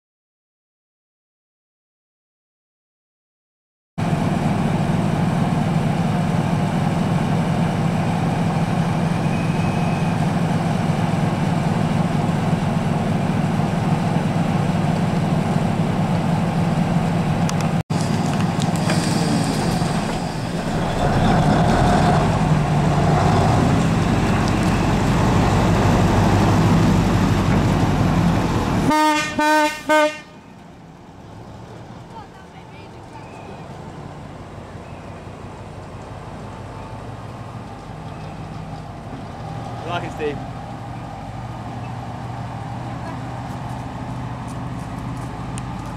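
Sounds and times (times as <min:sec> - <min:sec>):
diesel locomotive engine running: 0:04.0 - 0:45.9
locomotive horn toots: 0:28.8 - 0:30.6.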